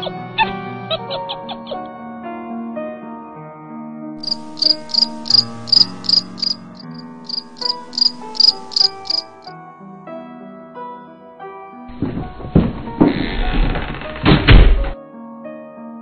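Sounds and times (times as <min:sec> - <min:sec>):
soft background music: 0:00.0 - 0:16.0
cricket chirping: 0:04.2 - 0:09.5.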